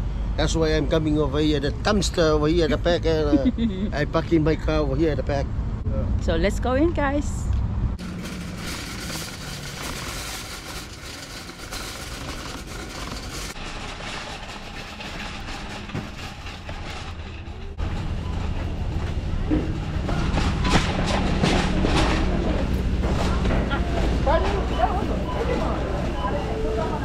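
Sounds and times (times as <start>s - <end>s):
wire shopping cart rattling: 8.0s - 25.8s.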